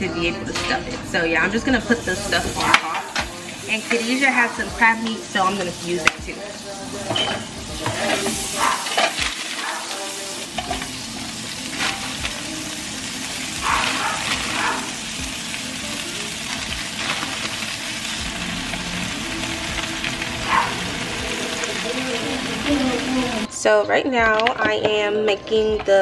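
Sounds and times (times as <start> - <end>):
spinach sizzling in a frying pan: 1.4 - 23.5
pot boiling: 7.0 - 23.5.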